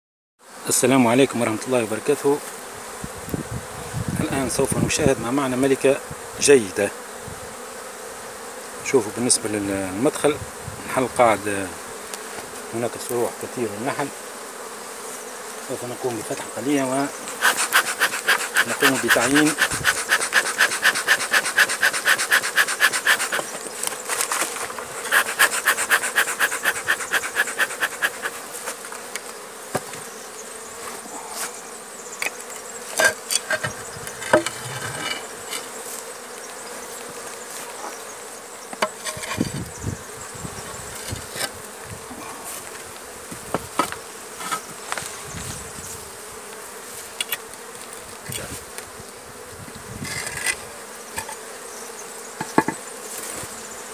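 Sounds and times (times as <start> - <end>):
bees buzzing: 0.4 - 53.9
concrete lid scraping: 17.2 - 30.0, 32.2 - 35.8, 38.8 - 39.7, 50.0 - 51.6.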